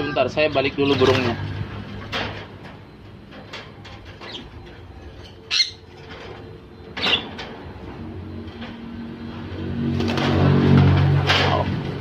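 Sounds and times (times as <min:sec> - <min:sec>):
parrot squawking: 0:05.5 - 0:05.9.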